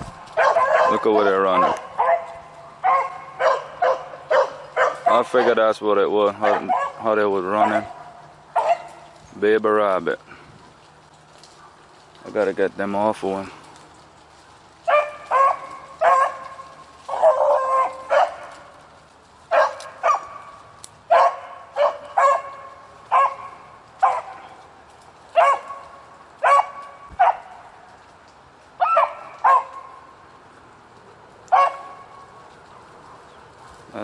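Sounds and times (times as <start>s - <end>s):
dogs barking: 0.3s - 9.2s, 14.8s - 18.8s, 19.5s - 24.6s, 25.3s - 27.7s, 28.8s - 30.1s, 31.5s - 34.0s.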